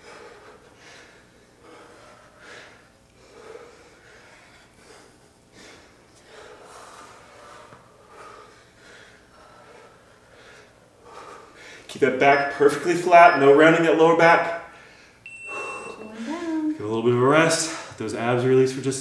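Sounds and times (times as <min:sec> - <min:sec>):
short faint breaths: 0:00.0 - 0:11.9.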